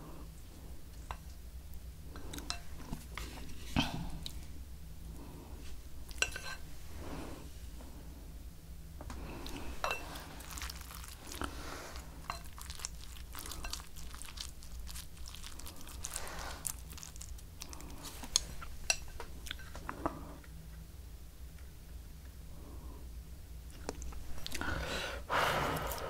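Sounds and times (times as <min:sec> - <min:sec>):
person chewing food: 0:09.2 - 0:20.6, 0:23.7 - 0:26.0.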